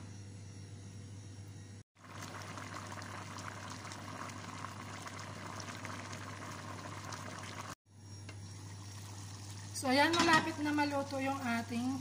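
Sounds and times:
curry bubbling in a pot: 2.0 - 7.8.

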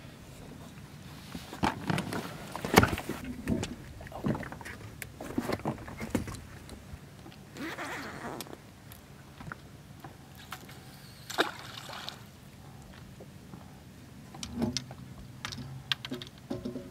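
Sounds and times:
wind: 0.0 - 16.9
knocks and thumps aboard boat: 2.7 - 6.5.

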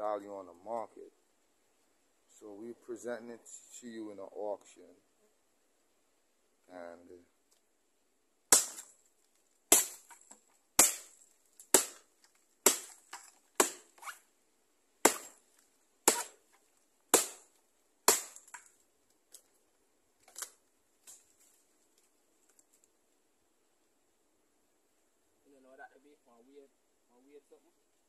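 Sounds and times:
axe chopping hollow tree trunk: 8.5 - 8.9, 9.7 - 14.1, 15.0 - 15.4, 16.0 - 16.5, 17.1 - 18.7.

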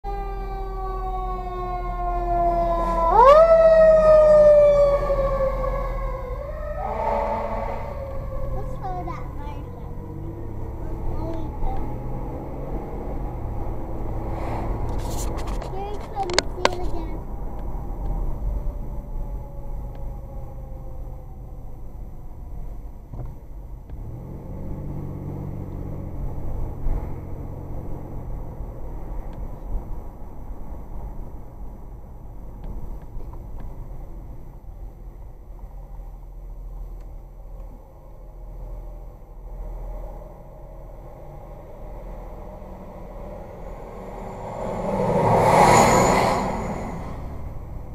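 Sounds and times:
fire engine siren wailing: 0.0 - 14.1, 18.3 - 22.8, 41.2 - 47.9.

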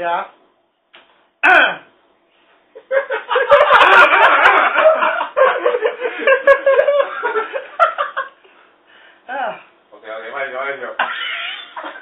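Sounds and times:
people laughing: 2.8 - 8.4.

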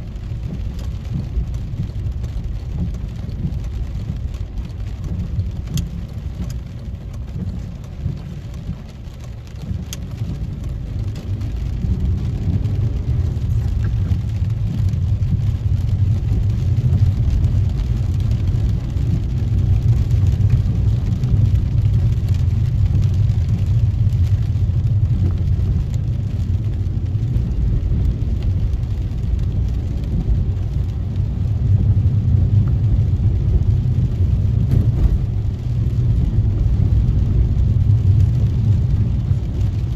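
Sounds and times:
car engine and tyre rumble: 0.0 - 39.9
raindrops tapping on windscreen: 0.0 - 39.9.

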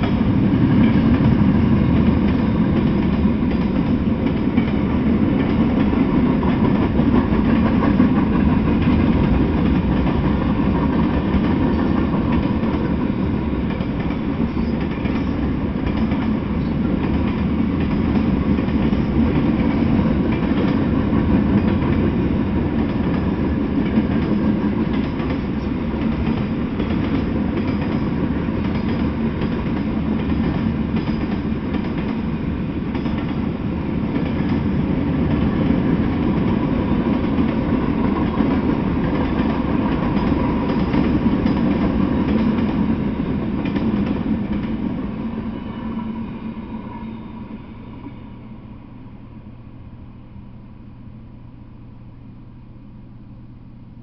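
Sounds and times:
freight train wheels on rails: 0.0 - 54.0.

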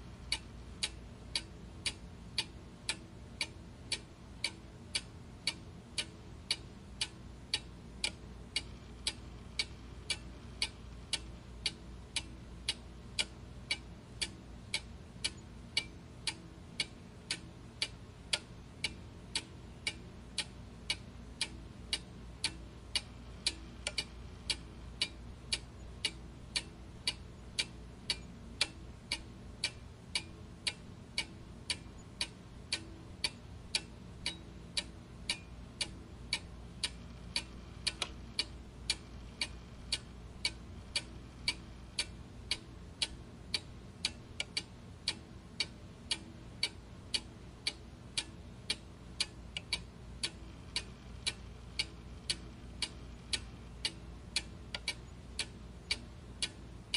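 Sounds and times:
low background noise: 0.0 - 56.9
clock ticking: 0.1 - 56.9.

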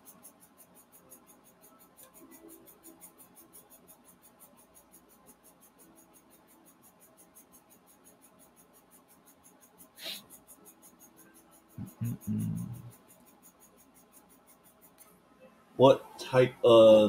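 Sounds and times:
fast high ticking: 0.0 - 15.0
brief hiss: 10.0 - 10.3.

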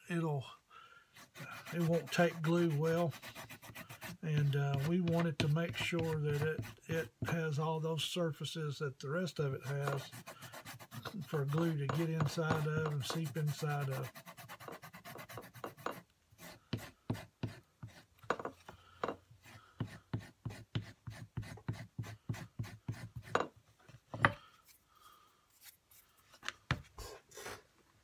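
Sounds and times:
rasp scraping leather: 1.2 - 6.9, 9.6 - 23.5.

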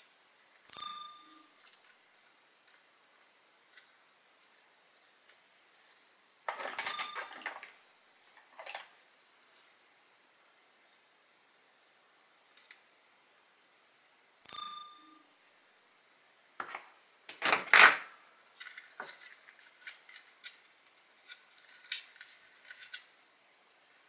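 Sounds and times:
tools handled on a workbench: 6.5 - 7.7, 8.4 - 8.9.

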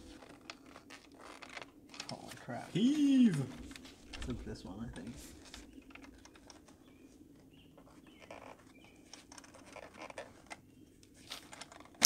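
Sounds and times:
faint clicks and knocks: 5.4 - 12.0.

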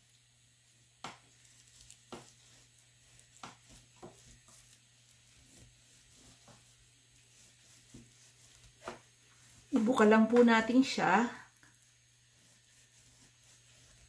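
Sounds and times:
knife cutting meat on board: 1.0 - 6.7.

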